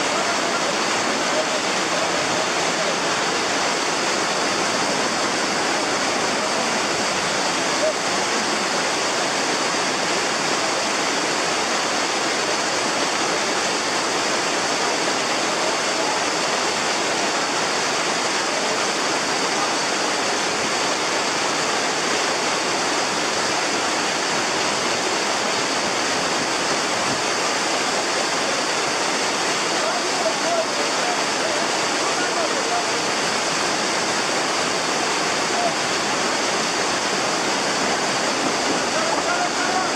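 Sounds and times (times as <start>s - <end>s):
stream rushing over rocks: 0.0s - 39.9s.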